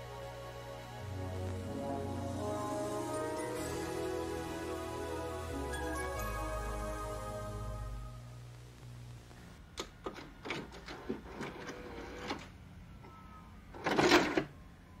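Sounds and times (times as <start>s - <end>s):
sharp clicks and clunks: 9.8s - 12.5s.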